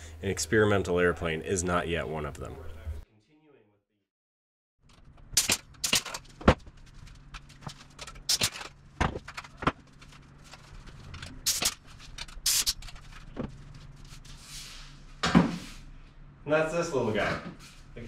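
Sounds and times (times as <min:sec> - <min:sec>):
pneumatic rivet squeezer bursts: 0:05.4 - 0:06.2, 0:08.3 - 0:08.6, 0:11.4 - 0:11.8, 0:12.4 - 0:12.8.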